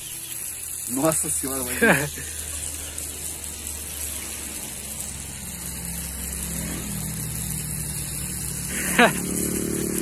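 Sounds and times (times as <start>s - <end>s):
motor engine humming: 0.0s - 10.0s.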